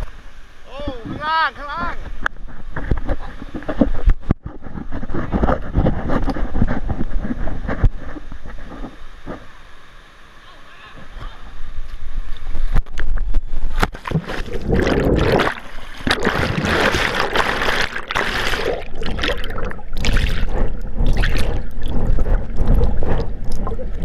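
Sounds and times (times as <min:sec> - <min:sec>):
muffled underwater rushing and bubbling: 0:00.0 - 0:24.0
plunge into water: 0:12.8 - 0:24.0.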